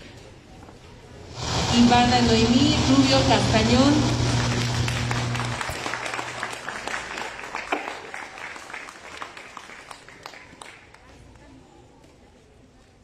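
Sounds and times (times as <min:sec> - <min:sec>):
audience clapping: 0:04.2 - 0:11.2.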